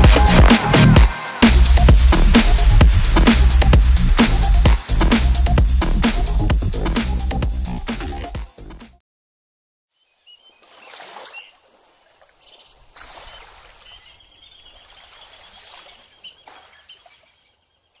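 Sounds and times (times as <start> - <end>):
rushing wash like running water: 0.0 - 7.0, 10.6 - 17.0
thin high calls: 10.0 - 18.0.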